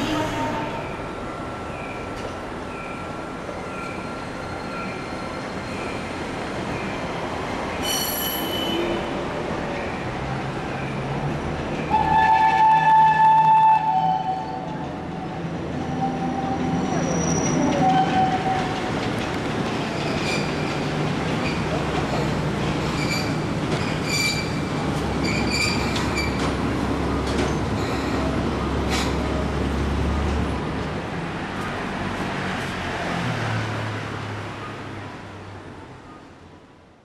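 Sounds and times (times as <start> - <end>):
street traffic: 0.0 - 37.0
train wheels squealing: 1.5 - 6.1, 7.8 - 9.0, 15.8 - 18.7, 22.8 - 26.5, 27.8 - 29.2.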